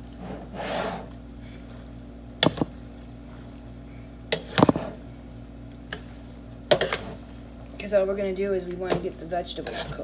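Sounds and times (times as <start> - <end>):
steady low hum: 0.0 - 10.0
spoon scraping metal pot: 9.6 - 10.0.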